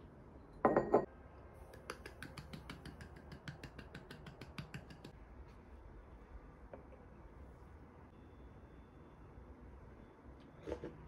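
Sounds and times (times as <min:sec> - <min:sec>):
cup clunking on saucer: 0:00.6 - 0:01.1.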